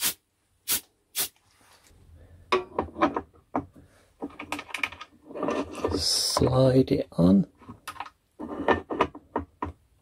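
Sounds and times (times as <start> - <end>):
spray bottle squirts: 0.0 - 1.4.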